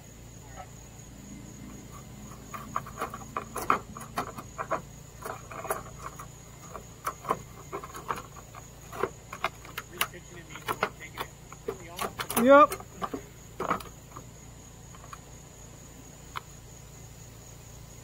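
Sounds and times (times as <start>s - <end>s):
crickets chirring: 0.0s - 18.0s
clicks and taps on metal guard: 2.0s - 14.3s.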